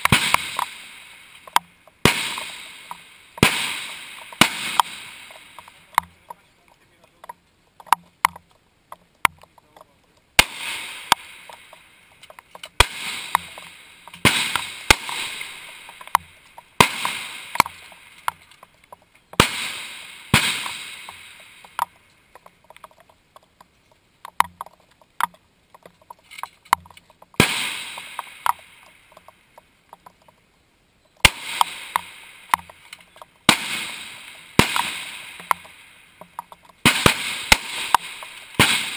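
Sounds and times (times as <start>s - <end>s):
rifle shots echoing: 0.0s - 6.3s, 10.4s - 12.0s, 12.6s - 18.5s, 19.4s - 22.0s, 27.4s - 29.0s, 31.2s - 36.0s, 36.8s - 38.9s.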